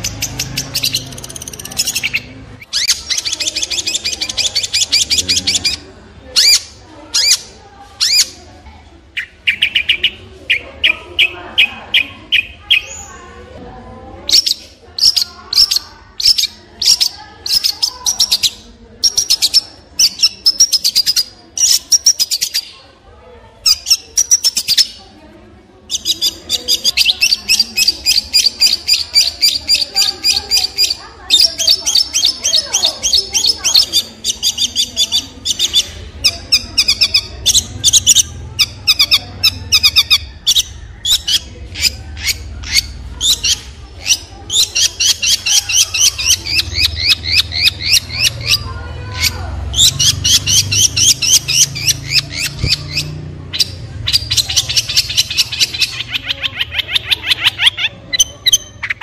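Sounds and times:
shrike singing rapid notes: 0.0s - 8.3s, 25.9s - 59.0s.

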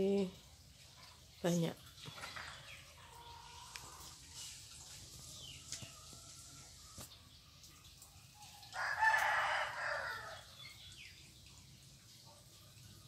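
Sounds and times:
rooster crowing: 8.8s - 10.5s.

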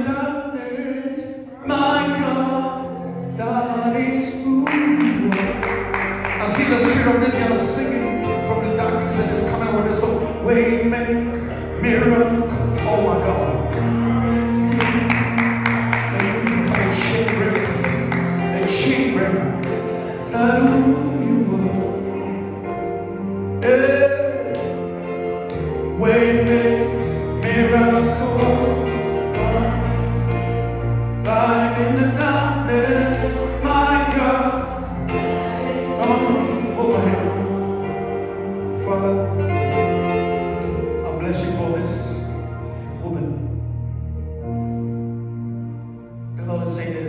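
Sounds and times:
person singing: 0.0s - 42.4s
held chords: 0.0s - 47.0s
voices singing: 31.2s - 39.0s.

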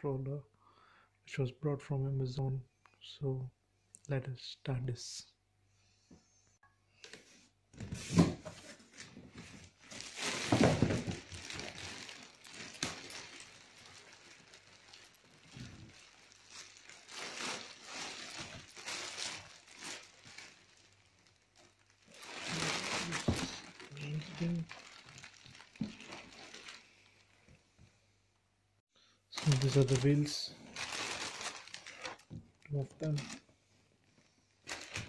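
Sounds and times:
plastic packaging crinkling: 8.9s - 27.5s, 29.3s - 33.4s, 34.6s - 35.0s.

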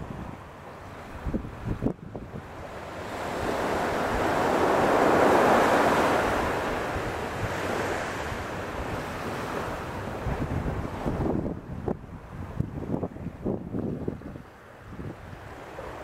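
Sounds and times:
wave breaking on sandy beach: 2.4s - 11.4s.

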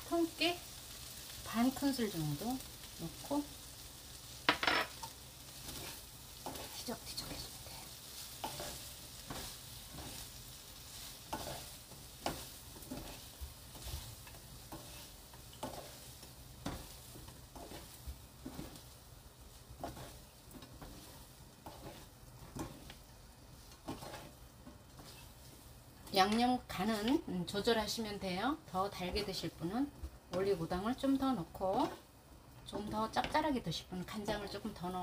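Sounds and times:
faint steady hiss: 0.0s - 35.0s
wooden spatula scraping a pan: 4.5s - 28.2s, 28.8s - 32.1s.

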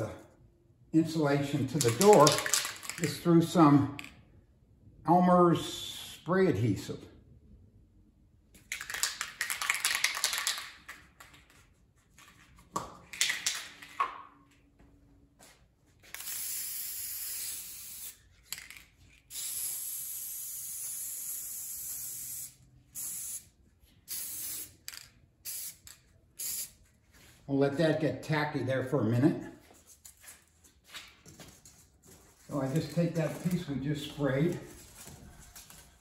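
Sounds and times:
aerosol spray hissing: 19.3s - 23.5s.

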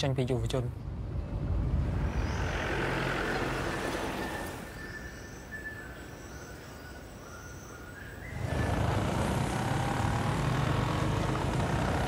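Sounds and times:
small motorcycle engine running: 8.4s - 12.0s.

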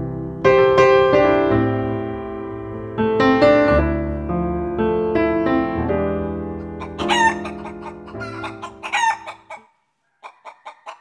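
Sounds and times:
piano music: 0.0s - 9.5s
clucking calls: 6.7s - 11.0s
rooster crowing: 6.8s - 11.0s.

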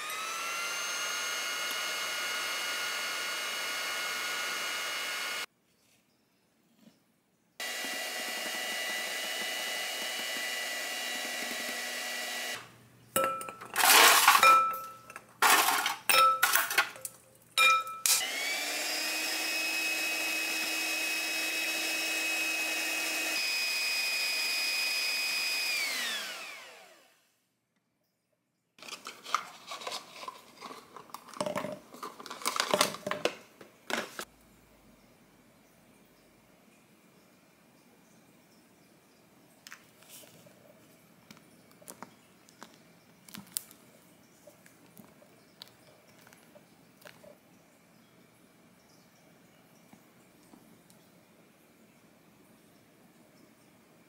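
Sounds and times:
kitchen appliance motor running: 0.0s - 5.5s, 7.6s - 12.7s, 13.8s - 14.4s, 15.4s - 15.9s, 18.1s - 27.3s.

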